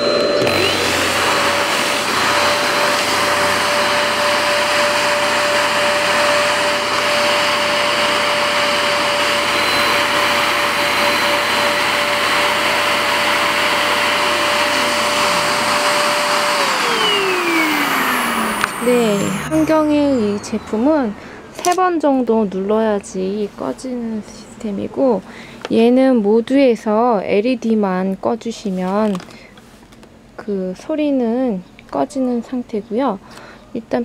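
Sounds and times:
vacuum cleaner running: 0.0s - 22.3s.

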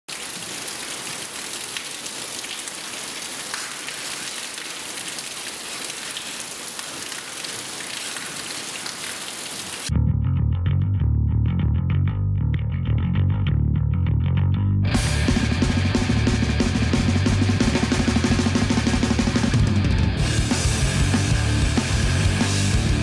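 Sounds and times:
steady rain: 0.1s - 9.9s
bass guitar playing: 9.9s - 23.0s.

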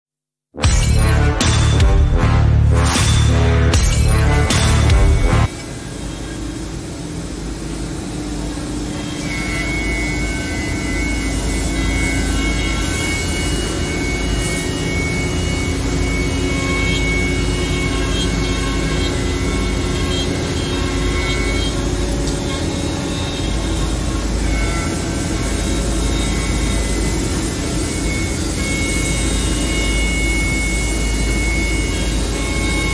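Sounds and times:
higher-pitched tone: 0.6s - 6.2s
machine drone: 0.6s - 32.9s
router spindle whining: 8.0s - 32.9s.

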